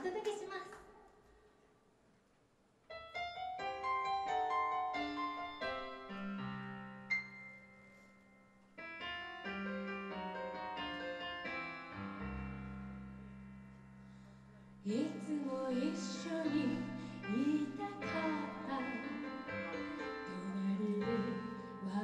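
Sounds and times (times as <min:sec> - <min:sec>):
solo piano ballad intro: 0:02.9 - 0:22.0.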